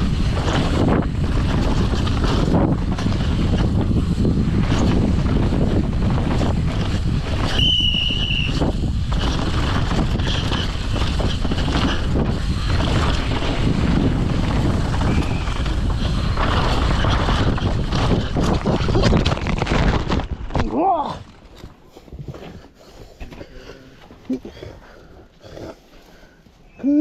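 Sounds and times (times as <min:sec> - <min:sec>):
wind buffeting microphone: 0:00.0 - 0:20.5
bike tyres rumbling over dirt: 0:00.0 - 0:26.3.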